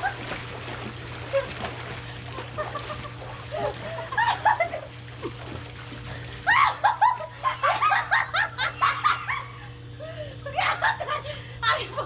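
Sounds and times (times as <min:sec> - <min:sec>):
steady low hum: 0:00.0 - 0:12.0
person laughing hard: 0:02.6 - 0:05.4.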